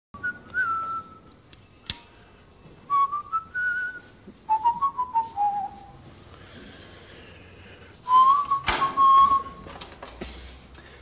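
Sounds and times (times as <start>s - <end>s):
person whistling a tune: 0.2s - 1.3s, 2.9s - 5.9s, 8.1s - 9.6s.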